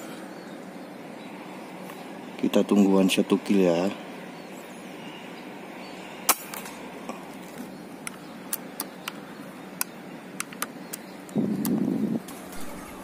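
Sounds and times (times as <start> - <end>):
steady outdoor hiss: 0.0 - 13.0
air rifle shot: 6.2 - 6.8.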